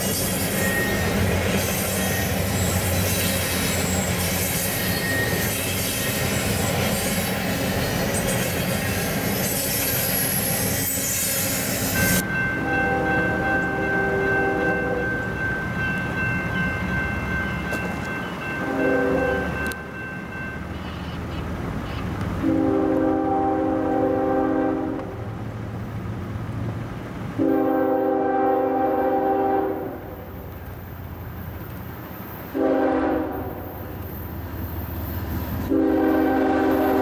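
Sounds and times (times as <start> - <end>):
wheel squeals: 0.0 - 12.2
freight train cars rolling: 0.0 - 37.0
locomotive horn chord: 18.6 - 19.8, 22.4 - 25.3, 27.4 - 30.2, 32.6 - 33.8, 35.7 - 37.0.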